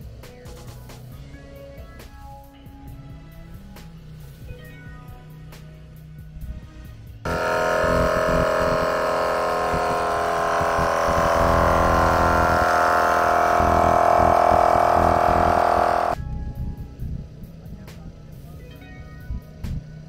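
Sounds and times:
air compressor buzzing: 0:07.3 - 0:16.2.

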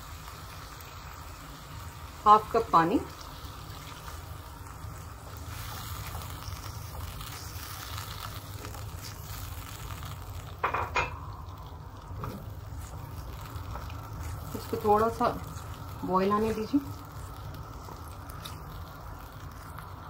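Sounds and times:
sauce bubbling and sizzling: 0:00.0 - 0:20.0
spatula stirring in wok: 0:03.3 - 0:10.6, 0:11.6 - 0:20.0.

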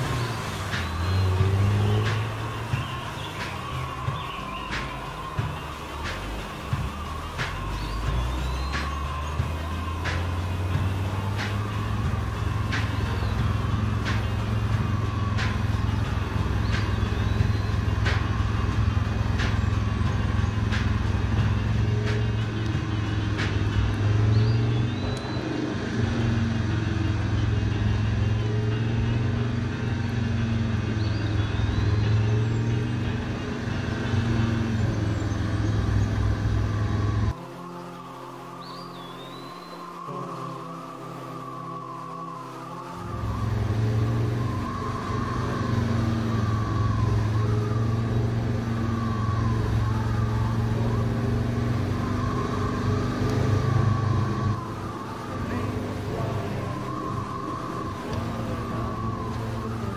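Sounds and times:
steady low drone: 0:00.0 - 0:59.9.

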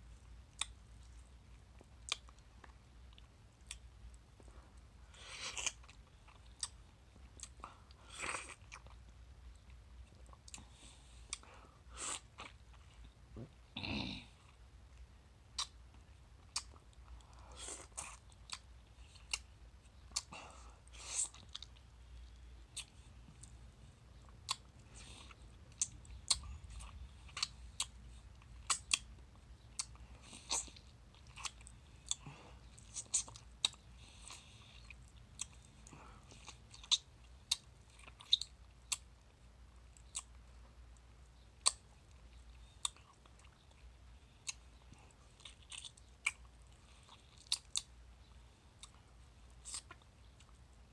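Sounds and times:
wet chewing and sucking: 0:05.1 - 0:13.1, 0:15.5 - 0:15.8, 0:16.4 - 0:23.6, 0:24.2 - 0:39.3, 0:41.6 - 0:47.9, 0:48.7 - 0:50.6
sharp wet mouth clicks: 0:15.6 - 0:15.8.

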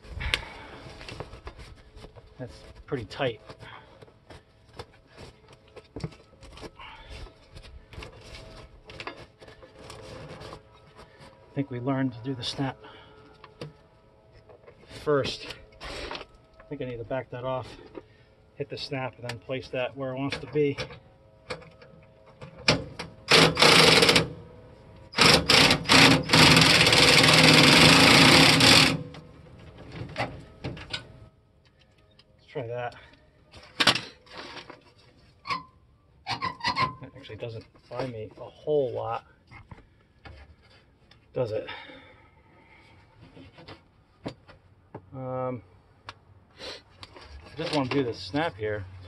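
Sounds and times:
cordless power driver running: 0:25.2 - 0:29.0.

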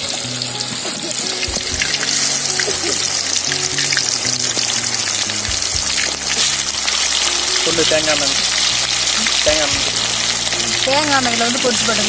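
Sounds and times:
background music: 0:00.0 - 0:12.0
chicken frying in oil: 0:00.0 - 0:12.0.

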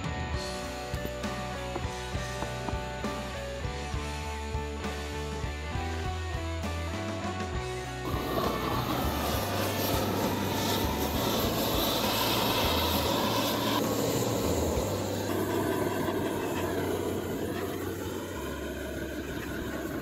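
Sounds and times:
blowtorch hissing: 0:08.0 - 0:20.0.

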